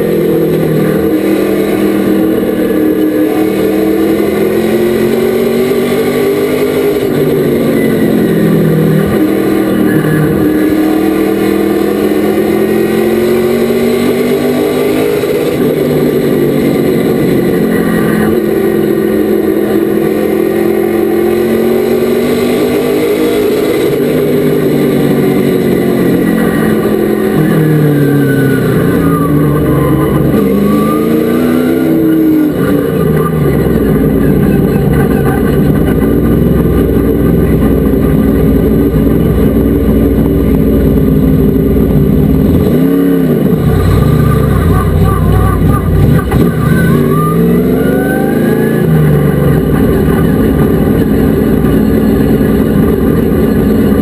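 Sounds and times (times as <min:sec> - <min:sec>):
race truck engine running hard: 0:00.0 - 0:54.0.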